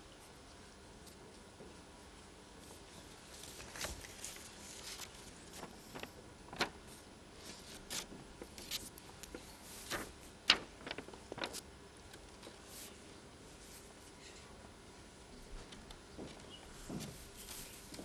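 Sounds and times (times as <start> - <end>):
faint small clicks and rustles: 0.5 - 13.0.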